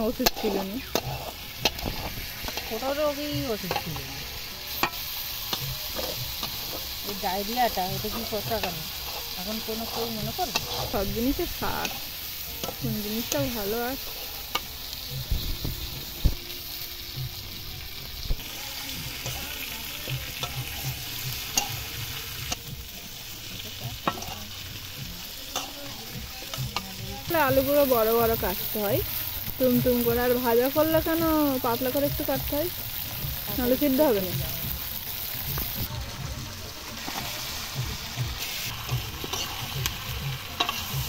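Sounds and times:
meat sizzling in oil: 0:00.0 - 0:41.0
metal spatula clacking on pan: 0:09.9 - 0:11.0, 0:21.4 - 0:21.9, 0:24.0 - 0:24.4.

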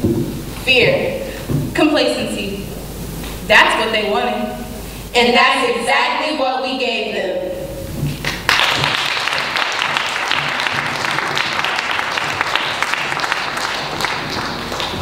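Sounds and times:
audience applauding: 0:08.2 - 0:15.0.

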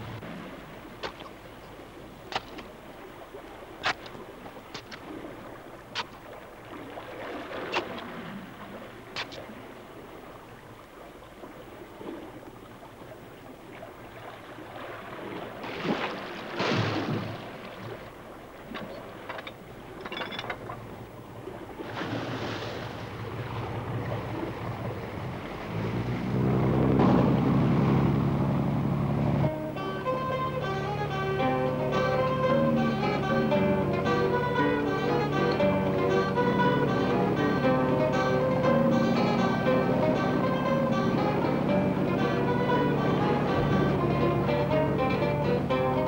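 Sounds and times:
sea water splashing around boat: 0:00.0 - 0:46.0
low steady drone: 0:23.0 - 0:46.0.

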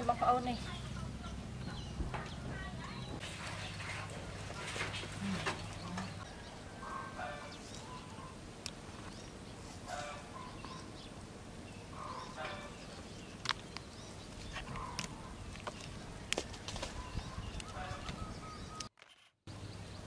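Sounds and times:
birds calling: 0:00.0 - 0:18.9
pods snapping off branches: 0:13.3 - 0:17.0.

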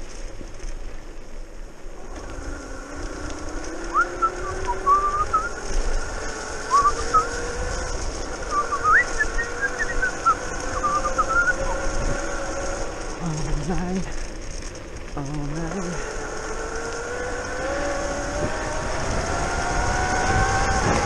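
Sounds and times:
electric scooter motor whining: 0:00.1 - 0:21.0
wavering whistle-like notes: 0:03.8 - 0:05.8, 0:06.6 - 0:07.8, 0:08.4 - 0:12.0.

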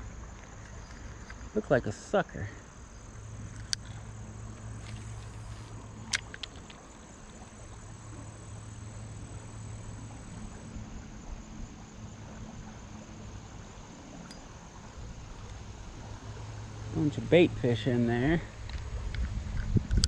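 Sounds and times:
crickets trilling: 0:00.0 - 0:20.0
low steady rumble: 0:00.0 - 0:20.0
fishing reel clicks: 0:03.5 - 0:04.0, 0:04.8 - 0:07.3.

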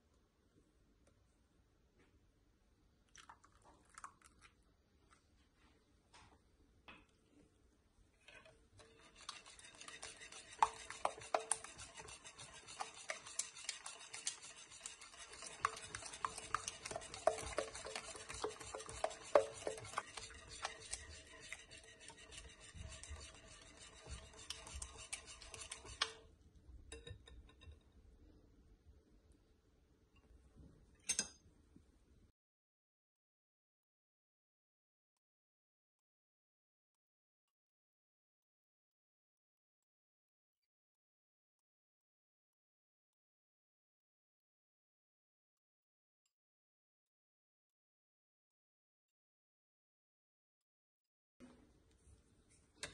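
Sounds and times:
whisk swishing egg mixture: 0:08.3 - 0:26.3.

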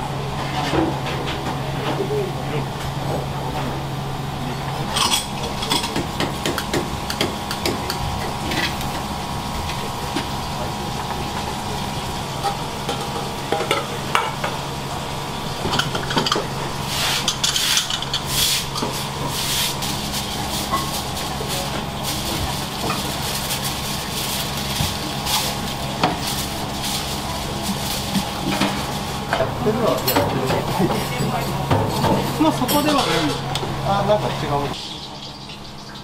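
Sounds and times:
steady hum: 0:00.0 - 0:36.0
metal utensils clinking on pans: 0:04.9 - 0:08.8, 0:17.2 - 0:19.0, 0:27.1 - 0:33.6
food sizzling in frying pans: 0:06.0 - 0:29.6, 0:34.7 - 0:36.0.

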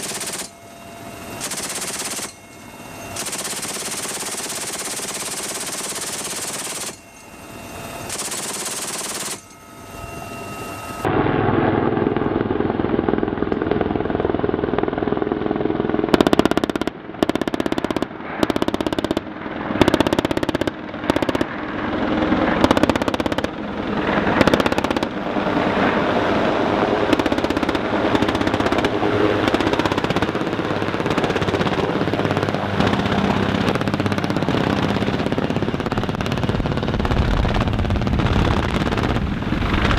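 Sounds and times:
gun firing rapid bursts: 0:00.0 - 0:00.5, 0:01.4 - 0:02.4, 0:03.2 - 0:07.0, 0:08.1 - 0:09.4, 0:16.1 - 0:21.6, 0:22.6 - 0:23.6, 0:24.4 - 0:25.2, 0:27.0 - 0:34.9
helicopter rotor and engines: 0:00.0 - 0:39.9.

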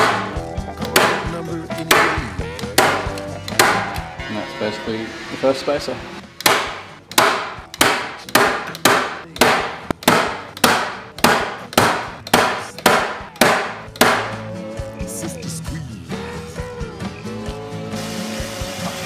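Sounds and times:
staple gun snapping: 0:01.9 - 0:04.1.

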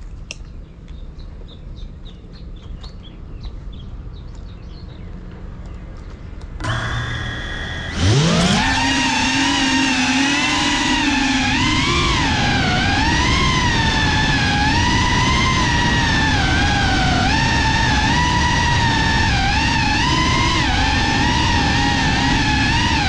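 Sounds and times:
drone motors whining: 0:06.5 - 0:23.0.

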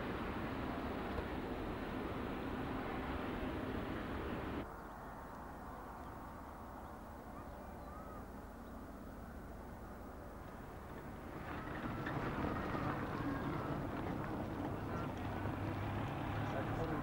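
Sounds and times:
outdoor background: 0:00.0 - 0:17.0
faint bird calls: 0:06.8 - 0:08.9.

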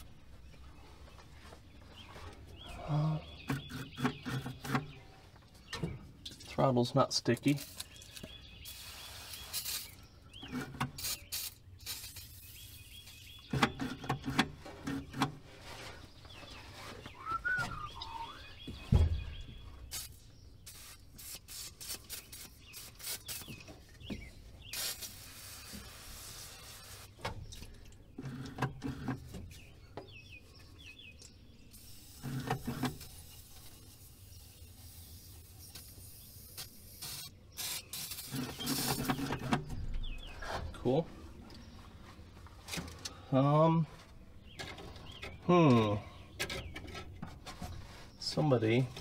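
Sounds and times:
birds chirping: 0:00.0 - 0:49.0
clicks and clanks of engine linkage: 0:13.6 - 0:15.4
heavy thump: 0:18.8 - 0:19.4.

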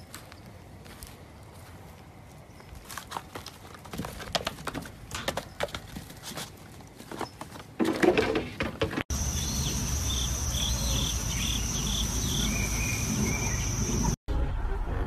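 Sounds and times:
bird chirping: 0:09.1 - 0:14.2
insects droning: 0:09.1 - 0:14.2.

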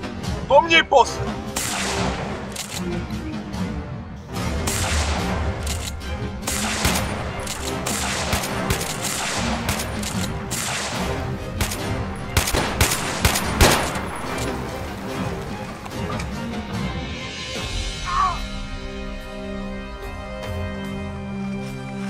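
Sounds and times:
background music: 0:00.0 - 0:22.0
gunshots: 0:01.5 - 0:02.8, 0:04.5 - 0:14.8.

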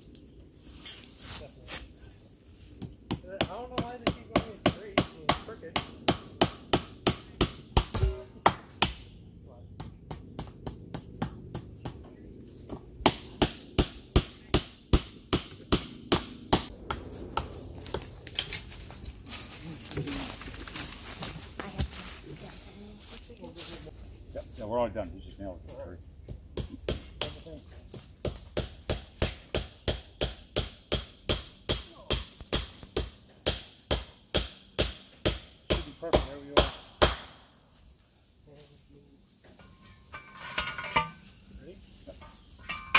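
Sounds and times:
hammer striking a nail: 0:02.8 - 0:09.1, 0:13.0 - 0:17.0, 0:28.2 - 0:37.4.

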